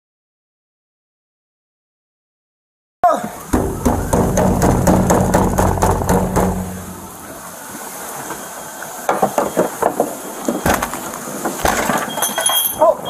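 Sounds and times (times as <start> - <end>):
heavy thumps: 3.6 - 7.3.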